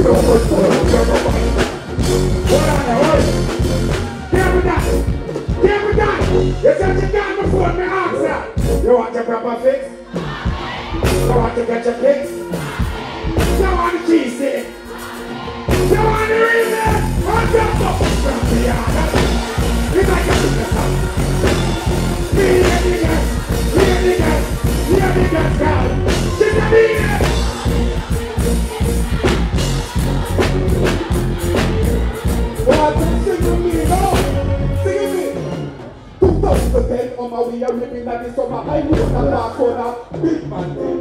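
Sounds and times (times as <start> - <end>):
dancehall music with heavy bass: 0.0 - 7.7, 12.4 - 36.9.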